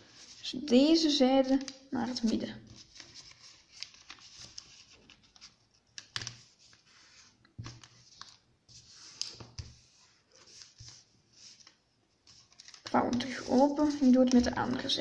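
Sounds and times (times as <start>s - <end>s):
paper rustling and crinkling: 0.0s - 15.0s
paper fold clicks: 1.4s - 6.8s, 9.0s - 15.0s.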